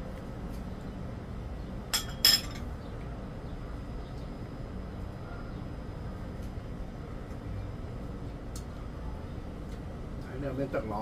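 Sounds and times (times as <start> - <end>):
cutlery clinking on ceramic bowl: 2.0 - 2.7.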